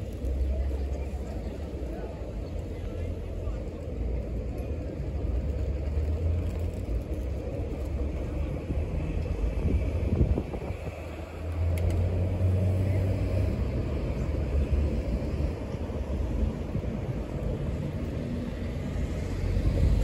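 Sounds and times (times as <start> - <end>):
faint murmur of people: 0.0 - 20.0
wind buffeting microphone: 7.8 - 12.6.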